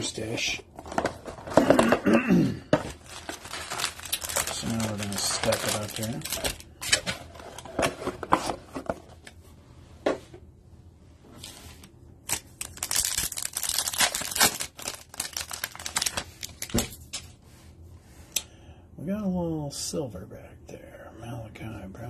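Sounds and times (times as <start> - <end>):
foil pack crinkling and tearing: 2.9 - 7.7, 12.2 - 16.9.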